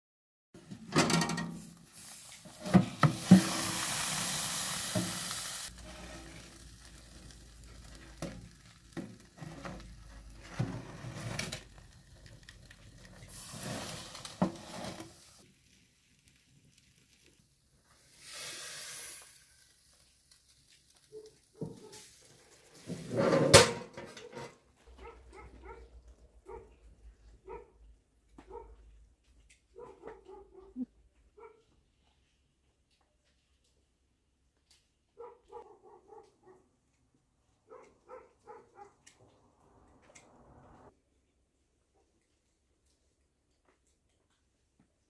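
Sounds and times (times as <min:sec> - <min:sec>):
metal clanks: 0:00.8 - 0:01.7
food sizzling in metal tray: 0:01.3 - 0:23.3
bursts of hissing: 0:01.9 - 0:07.0, 0:18.0 - 0:19.8.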